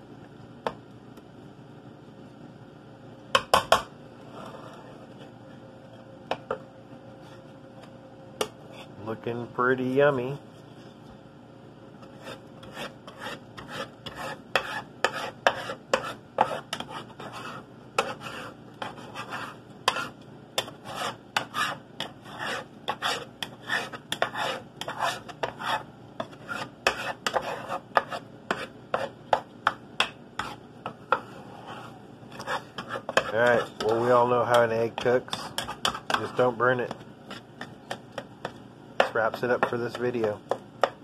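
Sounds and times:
spatula scraping frying pan: 0:08.6 - 0:09.0, 0:12.0 - 0:41.0.

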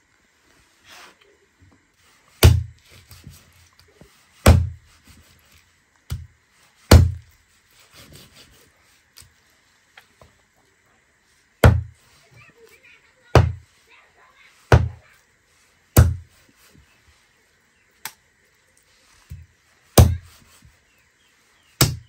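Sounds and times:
knife chopping on wooden block: 0:02.4 - 0:03.4, 0:04.4 - 0:04.8, 0:06.9 - 0:07.2, 0:11.6 - 0:11.9, 0:14.7 - 0:15.0, 0:16.0 - 0:16.3, 0:20.0 - 0:20.4, 0:21.8 - 0:22.0.

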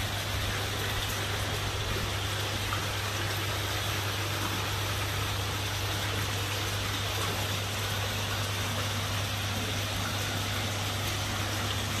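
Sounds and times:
pump humming: 0:00.0 - 0:12.0
water rushing: 0:00.0 - 0:12.0.

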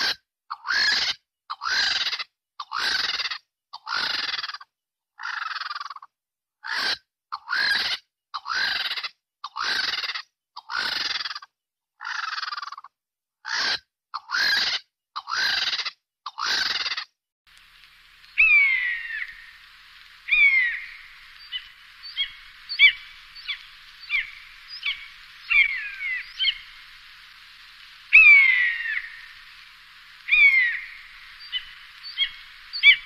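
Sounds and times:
vulture screeching: 0:00.0 - 0:04.5, 0:13.5 - 0:17.0, 0:18.2 - 0:33.0.

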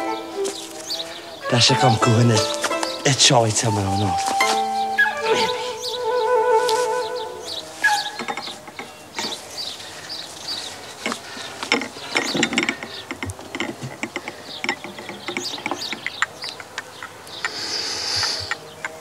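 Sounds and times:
metal table rattling: 0:07.9 - 0:10.0, 0:10.6 - 0:17.2.

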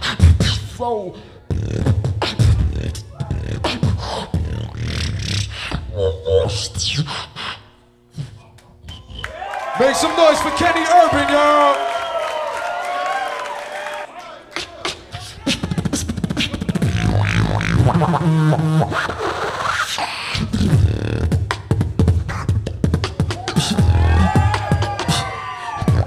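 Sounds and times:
beatboxing into a microphone: 0:00.0 - 0:09.4, 0:14.5 - 0:26.0.

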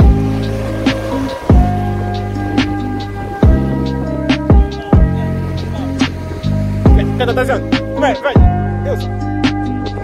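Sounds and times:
held electronic chords: 0:00.0 - 0:10.0
deep bass drum: 0:01.5 - 0:05.4, 0:06.8 - 0:08.6.

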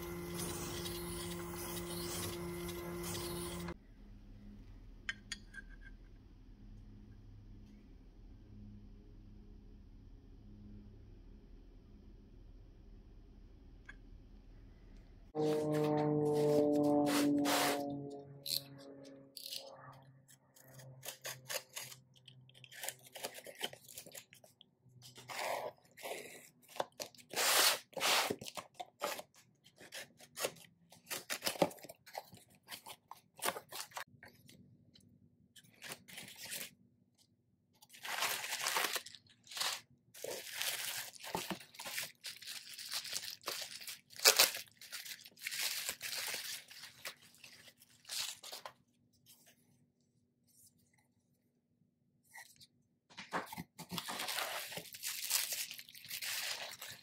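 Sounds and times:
knife slicing tape and cardboard: 0:15.4 - 0:18.6, 0:25.3 - 0:31.7
tape tearing: 0:15.4 - 0:19.7, 0:25.2 - 0:34.0, 0:37.9 - 0:48.7, 0:53.5 - 0:57.0
bubble wrap crinkling: 0:37.9 - 0:48.7, 0:53.9 - 0:57.0.

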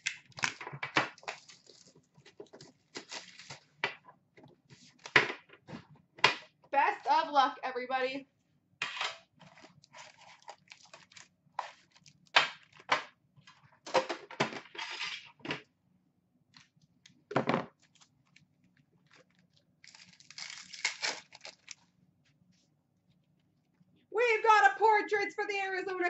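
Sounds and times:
foil packs crinkling: 0:00.0 - 0:03.8, 0:09.4 - 0:12.9, 0:19.0 - 0:21.9.

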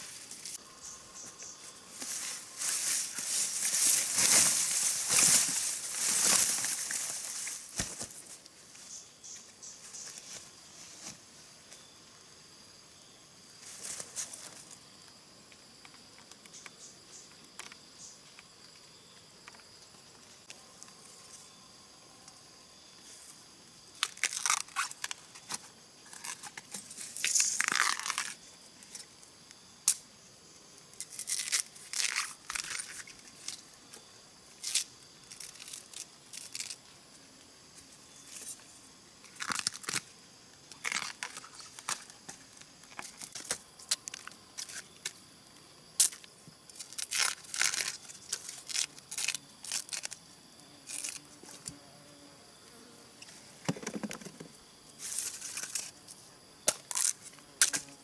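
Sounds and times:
plant husks tearing and crackling: 0:24.0 - 0:28.4, 0:31.0 - 0:33.6, 0:34.6 - 0:36.8, 0:39.3 - 0:40.1, 0:40.8 - 0:42.1, 0:46.0 - 0:51.3, 0:56.7 - 0:57.8.

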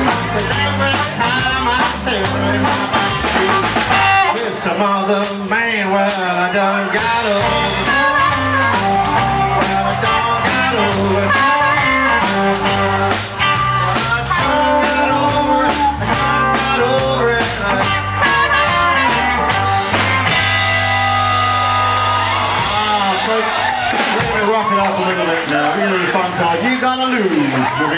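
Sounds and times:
drum kit beat: 0:00.0 - 0:04.6, 0:07.0 - 0:25.1
blues band playing: 0:00.0 - 0:26.6
harmonica wailing: 0:07.3 - 0:23.9.

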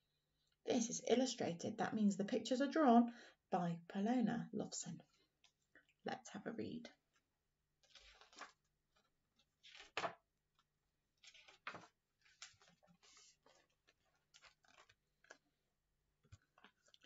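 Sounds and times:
paper rustling: 0:07.8 - 0:15.6, 0:16.2 - 0:17.0.

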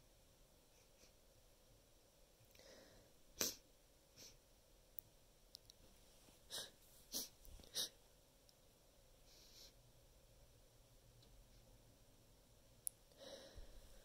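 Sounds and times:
soft breathy inhale: 0:02.5 - 0:03.6, 0:09.2 - 0:09.8, 0:13.1 - 0:14.0.

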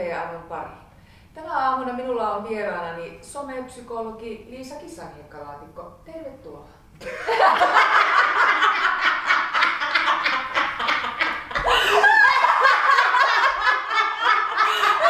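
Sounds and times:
women laughing: 0:07.0 - 0:15.0.

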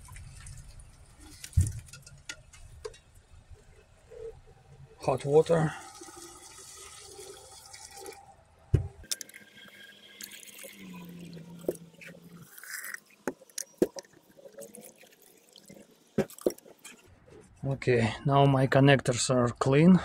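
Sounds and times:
small clicks and splashes: 0:00.0 - 0:03.1, 0:09.0 - 0:17.1
hot water pouring into glass: 0:05.0 - 0:08.4, 0:09.0 - 0:16.8.

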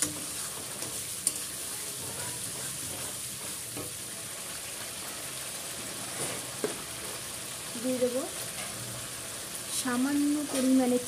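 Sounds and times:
spatula scraping pan: 0:00.0 - 0:04.0
sauce sizzling in oil: 0:00.0 - 0:11.0.

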